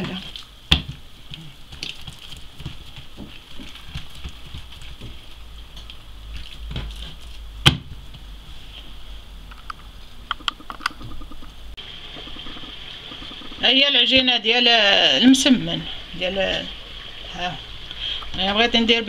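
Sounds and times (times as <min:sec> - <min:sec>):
hands patting dough: 0:00.0 - 0:08.2.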